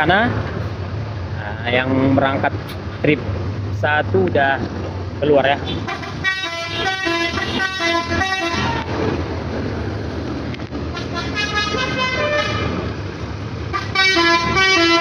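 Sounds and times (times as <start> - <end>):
bus engine running: 0.0 - 15.0
bus horn melodic toots: 5.7 - 8.9, 10.9 - 12.8, 13.7 - 15.0.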